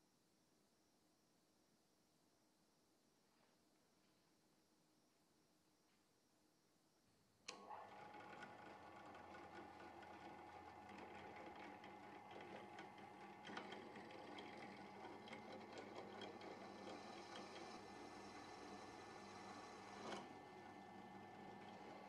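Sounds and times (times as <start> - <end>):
drill bit cutting ticks: 7.5 - 22.0
drill press motor running: 7.5 - 22.0.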